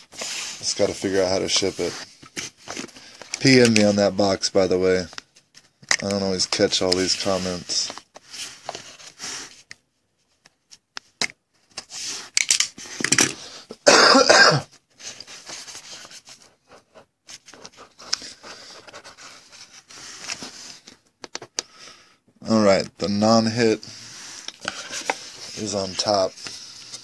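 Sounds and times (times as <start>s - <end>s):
person coughing: 13.8s - 14.7s.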